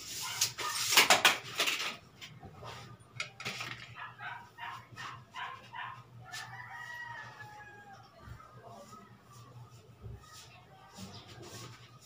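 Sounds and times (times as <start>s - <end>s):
dog barking: 4.0s - 6.0s.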